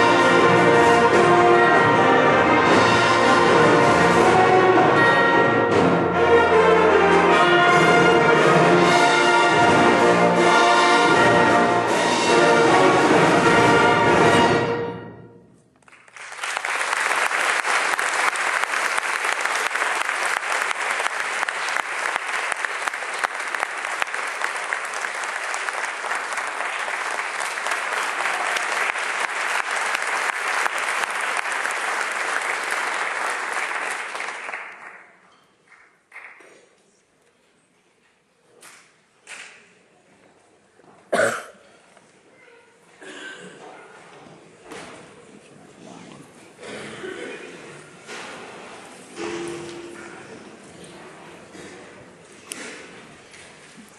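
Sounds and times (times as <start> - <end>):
concert band with brass playing: 0.0 - 15.5
audience applauding: 15.8 - 36.6.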